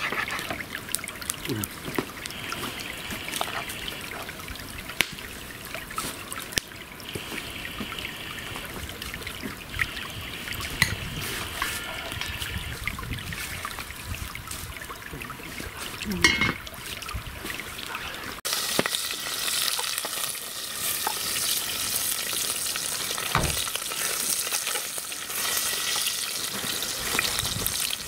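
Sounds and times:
campfire crackling and popping: 0.0s - 12.6s, 18.4s - 28.0s
trickling hiss: 0.0s - 28.0s.

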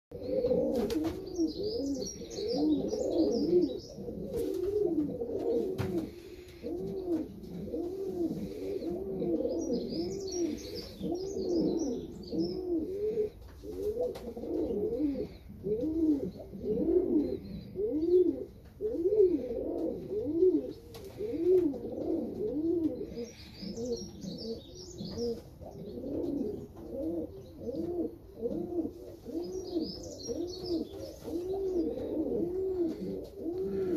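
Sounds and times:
pigeons cooing: 0.1s - 33.9s
high chirping: 9.4s - 12.7s, 23.1s - 26.0s.

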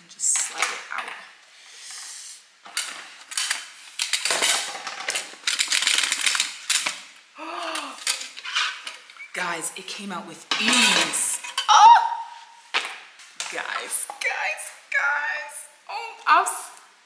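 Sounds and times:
person saying oh: 7.4s - 8.1s.

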